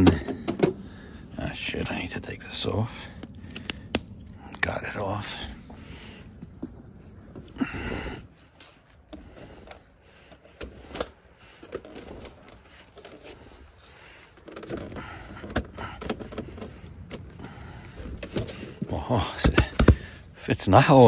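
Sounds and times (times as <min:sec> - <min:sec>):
seat rustling: 0:05.7 - 0:20.2.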